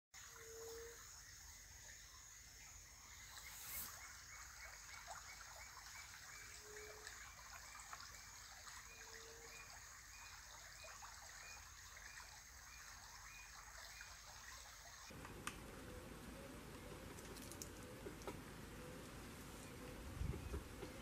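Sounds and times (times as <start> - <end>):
steady high hiss: 0.2 - 5.1.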